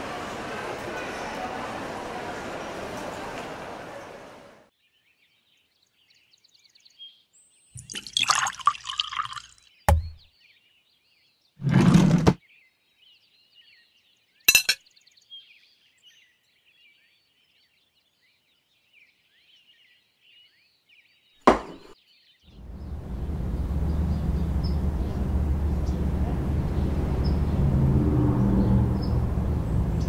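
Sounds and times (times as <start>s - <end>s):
low rumble of street ambience: 0.0s - 4.7s, 22.5s - 30.0s
sharp clinks: 14.5s - 14.8s
faint birds chirping: 22.0s - 30.0s.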